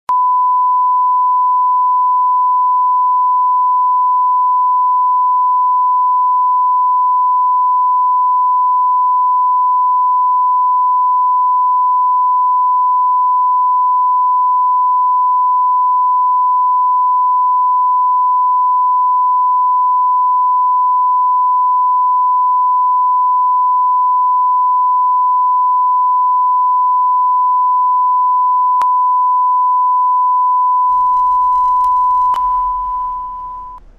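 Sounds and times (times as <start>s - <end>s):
electronic test beep: 30.9s - 33.9s.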